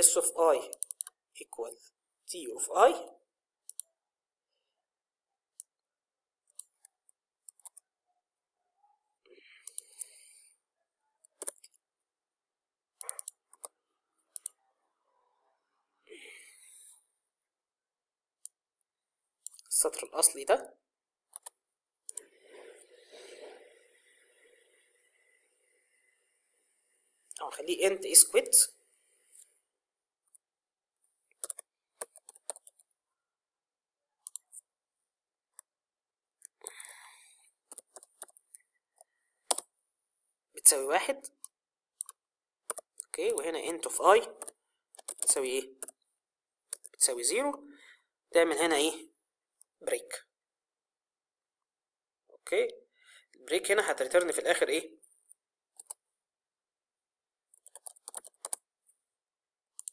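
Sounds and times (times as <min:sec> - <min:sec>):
keyboard and mouse clicks: 0:00.6 - 0:01.2, 0:03.6 - 0:03.9, 0:06.5 - 0:07.9, 0:09.6 - 0:10.2, 0:11.2 - 0:11.8, 0:13.0 - 0:14.6, 0:19.4 - 0:19.7, 0:21.3 - 0:22.3, 0:31.3 - 0:32.9, 0:34.2 - 0:34.7, 0:37.6 - 0:39.7, 0:41.4 - 0:43.6, 0:44.4 - 0:46.0, 0:46.7 - 0:47.0, 0:55.8 - 0:56.0, 0:57.5 - 0:58.7
computer keyboard keystrokes: 0:11.4 - 0:11.7, 0:21.4 - 0:22.2, 0:31.4 - 0:32.8, 0:37.7 - 0:38.4, 0:42.0 - 0:43.4, 0:44.4 - 0:46.0, 0:57.6 - 0:58.6.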